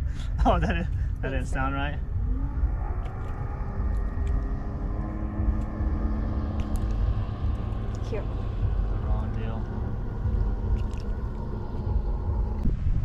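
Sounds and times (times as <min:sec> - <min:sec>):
engine drone: 0:00.0 - 0:13.0
low rumble: 0:00.0 - 0:13.0
faint clicks: 0:03.0 - 0:04.6.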